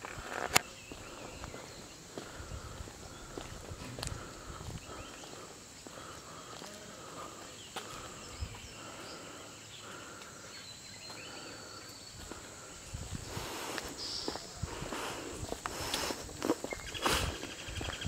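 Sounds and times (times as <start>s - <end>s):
footsteps scuffing: 0.0s - 6.8s, 7.4s - 8.7s, 13.1s - 18.0s
insects humming: 0.0s - 18.0s.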